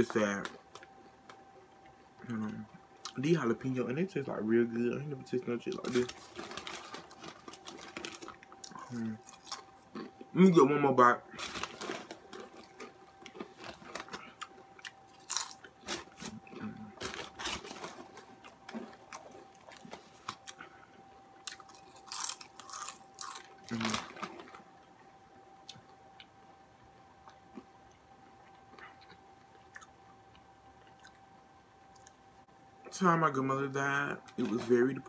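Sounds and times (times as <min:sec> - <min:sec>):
crunchy snack chewing: 0:05.8 - 0:10.3, 0:11.4 - 0:20.6, 0:21.4 - 0:24.6.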